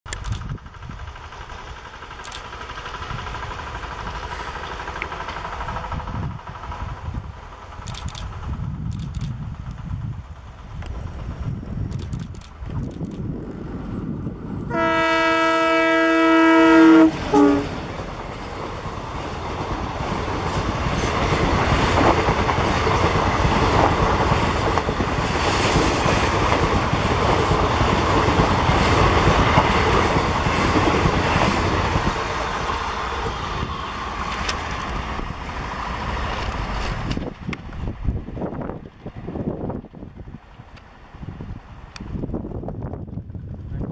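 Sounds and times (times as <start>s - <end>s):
train rumbling past: 0.1s - 43.9s
locomotive horn blasts: 14.7s - 17.8s
wheels clattering over rail joints: 17.2s - 33.4s.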